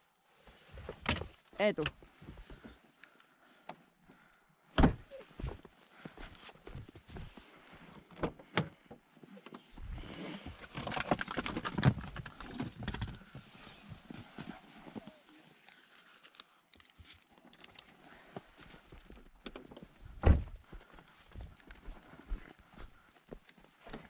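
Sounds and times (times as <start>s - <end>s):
rustling and scuffing: 13.5s - 15.3s.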